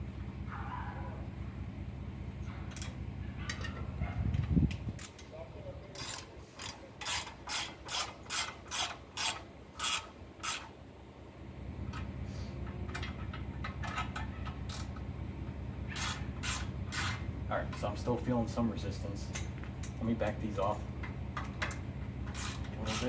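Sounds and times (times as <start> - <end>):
ratchet wrench clicking: 5.0 - 5.3, 5.9 - 10.7, 12.9 - 15.0, 15.9 - 17.2, 21.4 - 23.0.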